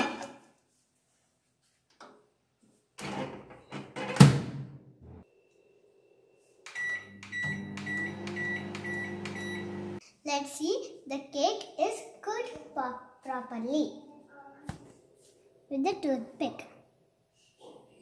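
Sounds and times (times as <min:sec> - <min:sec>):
microwave oven humming: 0:07.0 - 0:10.0.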